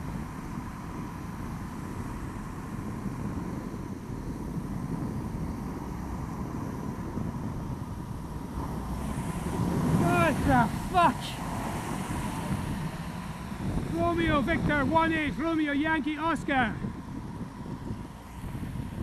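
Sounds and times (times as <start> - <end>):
tyre noise on wet road: 0.0 - 19.0
wind buffeting microphone: 0.0 - 19.0
large vehicle passing close: 5.8 - 19.0.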